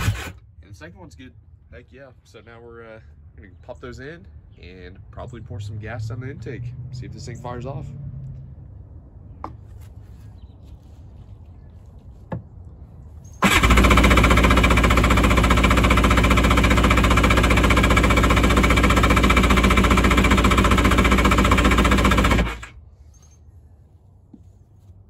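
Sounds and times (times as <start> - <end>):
engine cranking with rapid chugging: 0.0 - 0.4, 13.4 - 22.8.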